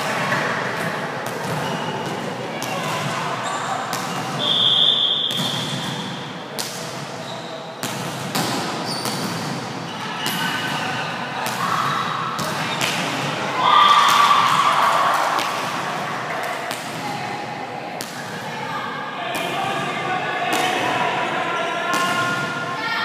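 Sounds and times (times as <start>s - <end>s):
volleyball smacks echoing: 3.9s - 7.0s, 7.8s - 9.7s, 10.3s - 17.1s, 21.9s - 22.6s.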